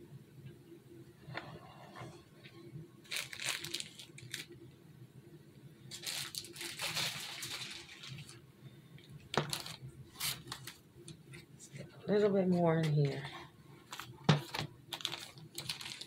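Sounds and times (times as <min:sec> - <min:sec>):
plastic bag crinkling: 0:03.0 - 0:04.6, 0:05.9 - 0:08.4, 0:09.3 - 0:10.8, 0:13.8 - 0:16.0.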